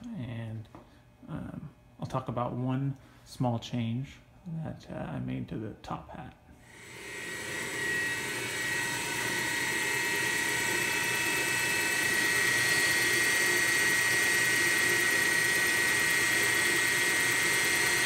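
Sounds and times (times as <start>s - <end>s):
mill spindle high-pitched whine: 6.6s - 18.0s.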